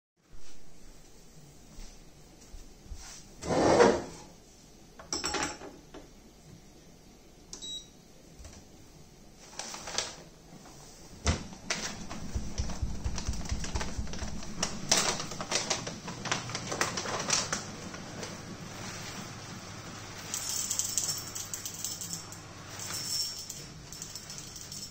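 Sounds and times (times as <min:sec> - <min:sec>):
low hum: 0:11.4 - 0:19.2
paper bag rustling: 0:11.6 - 0:20.2.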